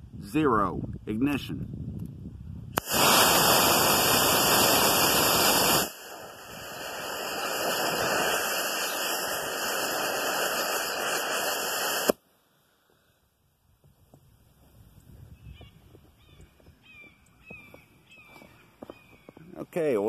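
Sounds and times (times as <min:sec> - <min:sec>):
sharp pop: 0:02.8 - 0:03.6
rocket motor rushing hiss: 0:02.8 - 0:12.2.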